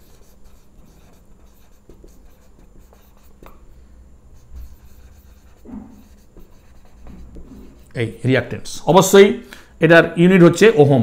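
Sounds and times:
handwriting scratching: 0.0 - 3.6, 4.4 - 8.0
steady low hum: 0.0 - 11.0.

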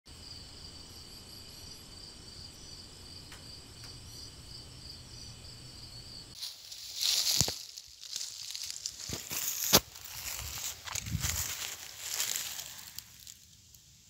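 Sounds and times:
insects trilling: 0.1 - 14.0
rustle: 6.4 - 14.0.

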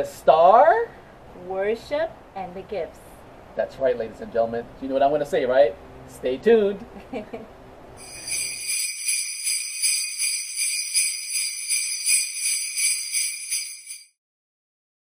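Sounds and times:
sleigh bells shaken: 8.0 - 14.2.

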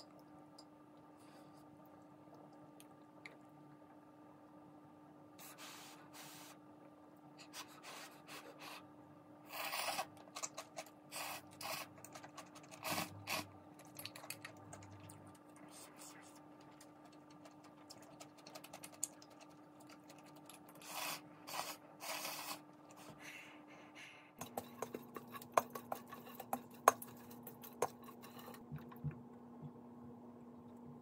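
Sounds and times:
faint steady hum: 0.0 - 31.0
noodles slurped: 9.5 - 22.7.

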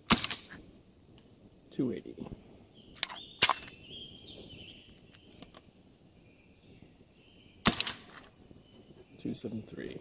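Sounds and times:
bird whistling: 2.8 - 5.4.

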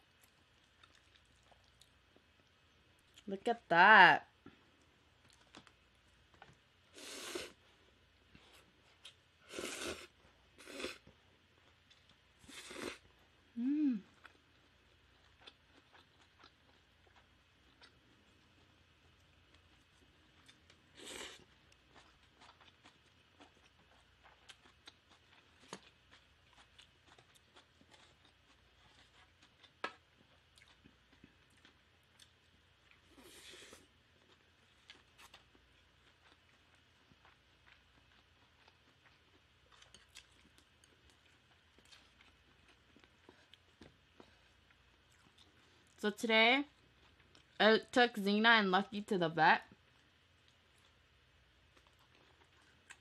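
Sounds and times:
chewing and wet mouth clicks: 0.2 - 2.3, 21.7 - 33.0
hissy noodle slurps: 9.5 - 11.0.

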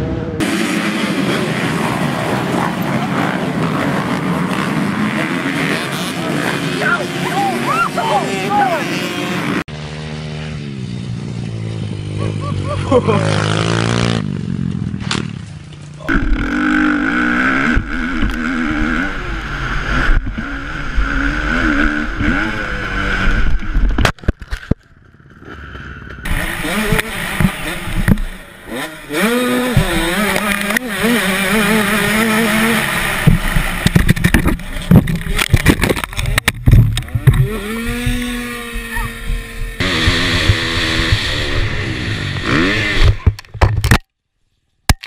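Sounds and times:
dirt bike engines revving: 0.0 - 24.0, 24.6 - 43.5
sharp knocks and thumps: 33.2 - 38.4.

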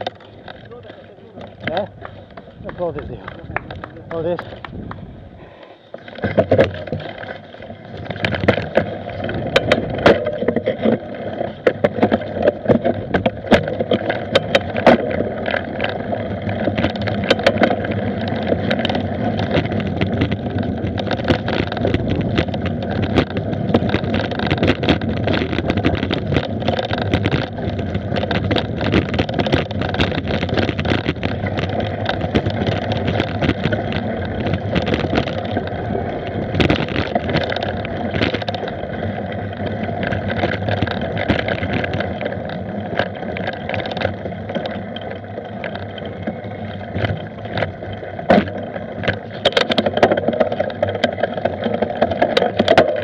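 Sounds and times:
bike knocking over bumps: 0.0 - 53.0
bike tyres and frame rattling: 0.0 - 53.0.

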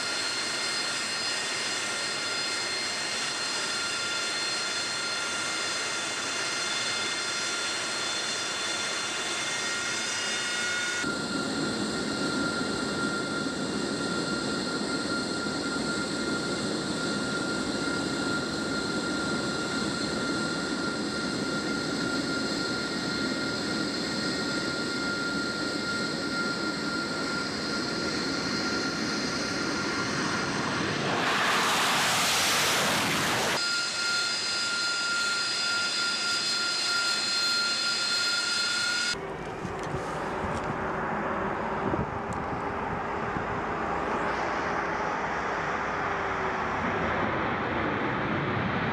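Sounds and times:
jet engine roar with whine: 0.0 - 48.9
loud hissing blast: 30.6 - 33.6.

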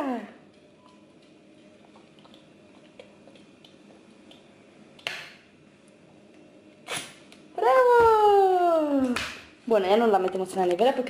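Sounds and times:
liquid ticks and drips: 0.8 - 4.5.

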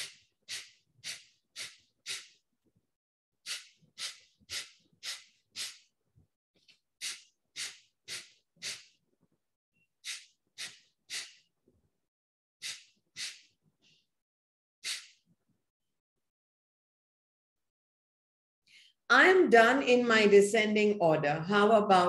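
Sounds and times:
forceful nasal exhalations: 0.0 - 2.4, 3.4 - 6.0, 7.0 - 9.0, 10.0 - 11.5, 12.6 - 13.6, 14.8 - 15.2.

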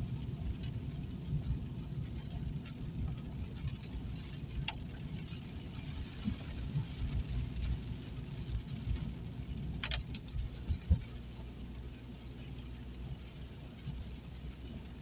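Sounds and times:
car engine and tyres rumbling: 0.0 - 15.0
rain pattering on car: 0.0 - 15.0
windscreen wipers squeaking: 1.1 - 11.2.

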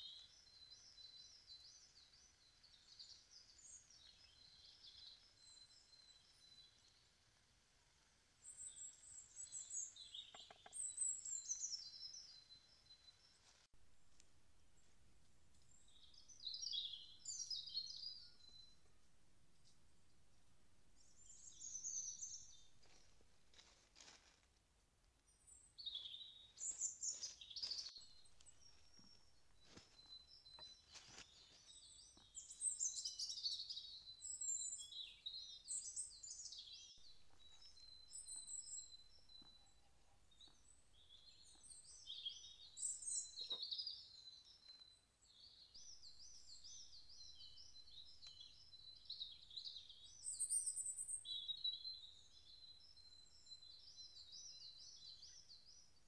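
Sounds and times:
songbirds singing and trilling: 0.0 - 7.3, 8.4 - 13.7, 15.5 - 24.2, 25.2 - 56.0
faint clicks: 10.2 - 11.0.

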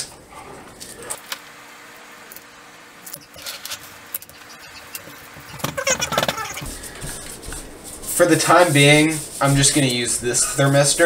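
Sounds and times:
faint steady hum: 0.0 - 11.0
gloved hands rustling: 3.1 - 11.0.

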